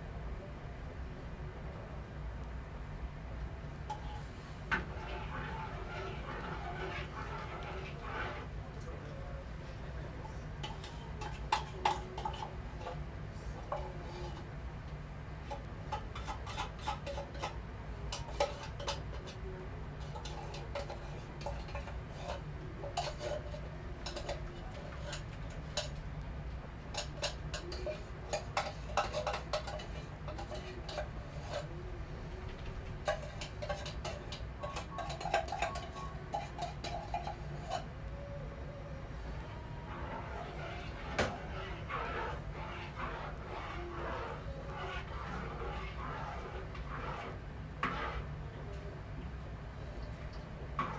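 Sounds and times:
steady low hum: 0.0 - 50.9.

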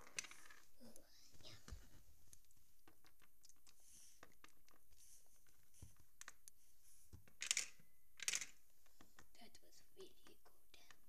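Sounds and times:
plastic toys clicking: 0.0 - 0.6, 7.2 - 8.6.

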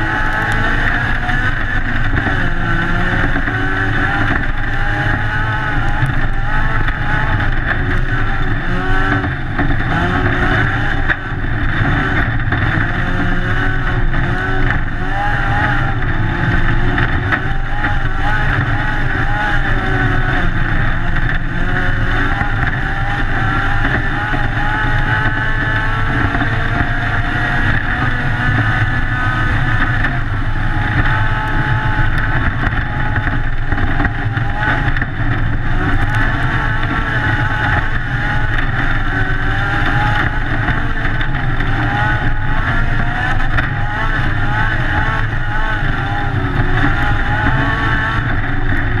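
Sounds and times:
car engine revving: 0.0 - 49.0
wind and tyre noise: 0.0 - 49.0.

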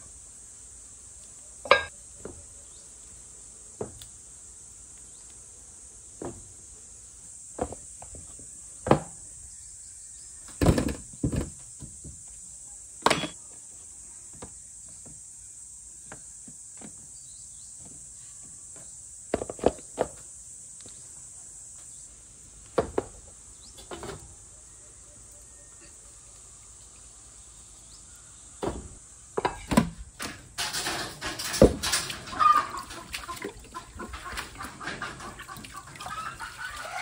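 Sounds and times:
cookware knocks and clinks: 1.7 - 1.9, 13.0 - 13.4.

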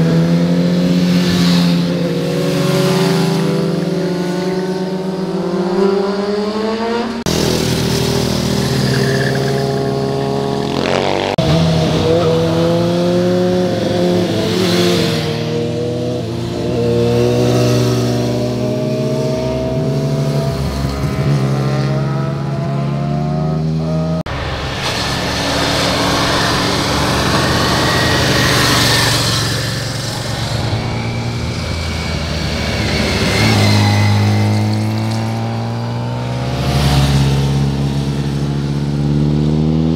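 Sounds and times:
motorcycle engines passing: 0.0 - 39.9.

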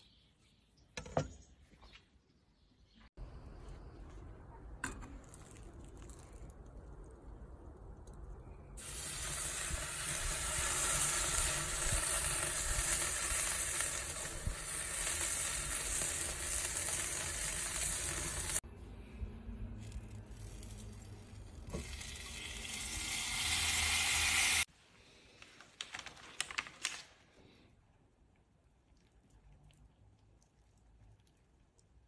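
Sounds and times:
steak sizzling on a grill: 8.8 - 18.6, 21.8 - 24.7.

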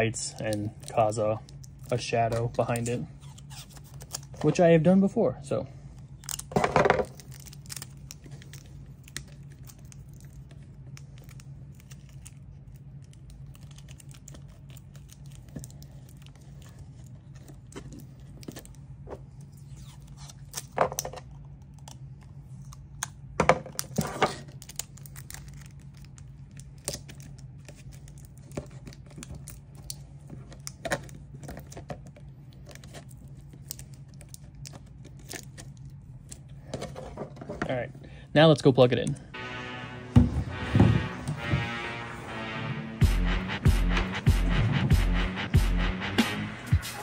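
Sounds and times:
steady low hum: 0.0 - 47.0
tape clicking and crinkling: 0.3 - 4.6, 6.0 - 37.1.

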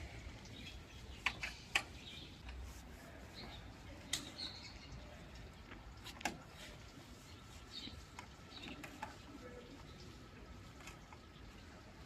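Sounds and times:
rag wiping plastic casing: 1.2 - 4.0, 6.0 - 10.0.

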